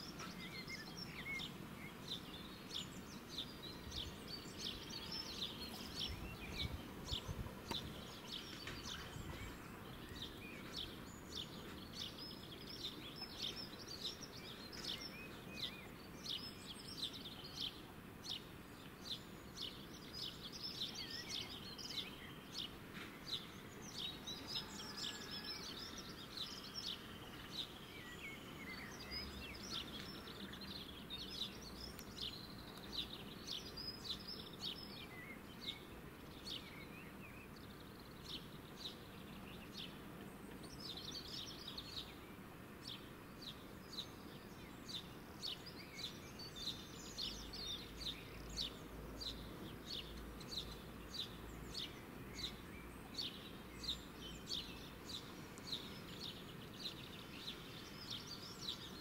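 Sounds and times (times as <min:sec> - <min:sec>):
faint steady hiss: 0:00.0 - 0:59.0
small birds chirping: 0:00.0 - 0:59.0.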